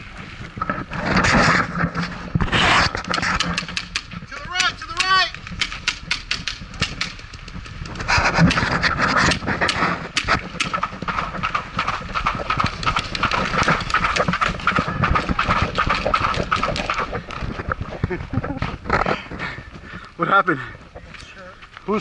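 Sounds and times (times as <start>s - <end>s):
person panting hard: 19.0s - 20.9s.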